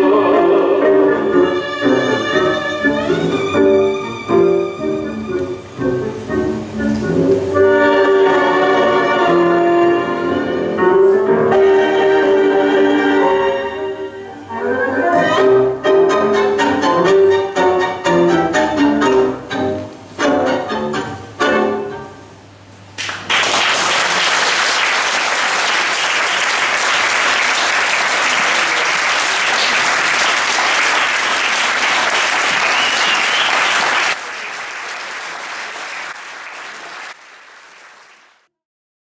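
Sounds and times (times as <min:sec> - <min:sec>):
tango music: 0:00.0 - 0:22.4
audience applauding: 0:23.0 - 0:38.5.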